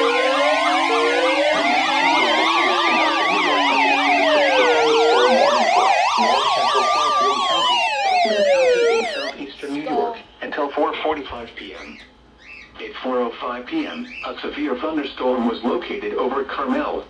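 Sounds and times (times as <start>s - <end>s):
electronic sirens yelping and wailing: 0.0s - 10.0s
high alert tone: 0.0s - 10.1s.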